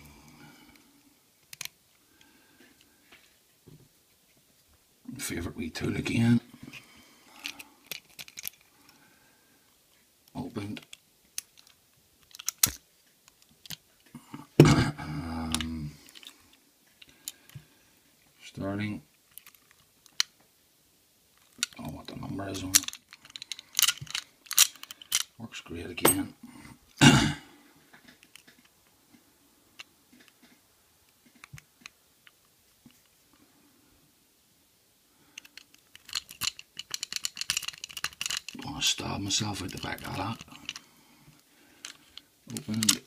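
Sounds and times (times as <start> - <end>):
metallic clicks and clinks: 22.7 - 25.3, 35.4 - 38.6
metallic clack of padlock: 35.5 - 38.5.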